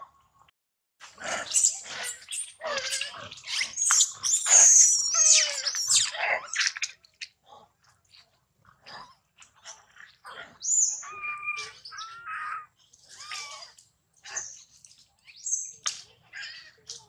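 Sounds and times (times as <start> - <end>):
macaque squealing cries: 1.2 - 6.9, 10.5 - 14.6.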